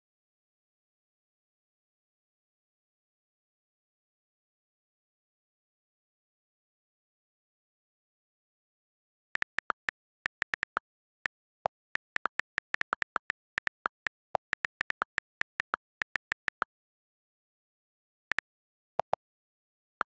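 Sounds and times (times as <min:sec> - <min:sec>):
on-screen keyboard typing clicks: 0:09.4 - 0:16.7.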